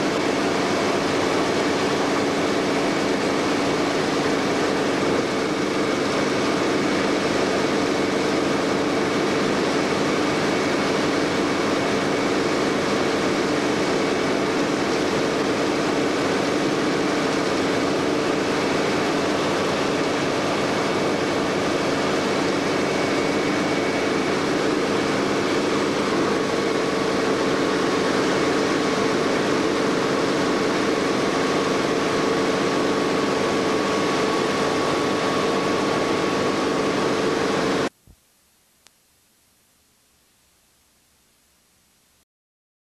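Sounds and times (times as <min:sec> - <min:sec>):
helicopter engine and rotor drone: 0:00.0 - 0:37.9
constant whine: 0:00.0 - 0:41.6.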